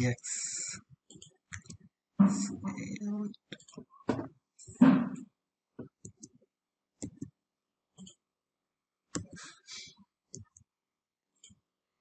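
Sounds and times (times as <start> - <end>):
mouse and keyboard clicks: 7.0 - 7.3, 9.1 - 9.4.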